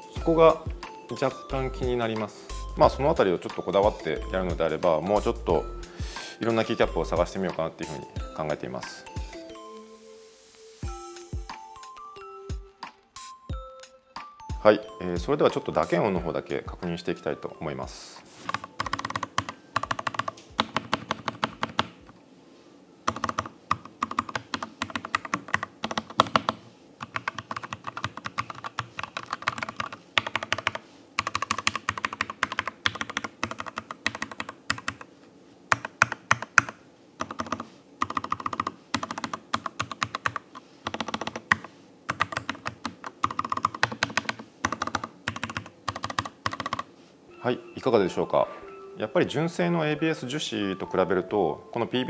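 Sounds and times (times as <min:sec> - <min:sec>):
typing on mechanical keyboard: 0:18.5 - 0:22.2, 0:23.1 - 0:35.1, 0:35.7 - 0:46.9.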